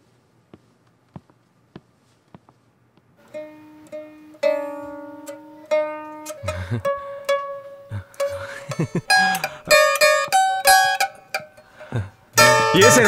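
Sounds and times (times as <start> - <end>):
mandolin plucked notes: 3.2 - 13.0.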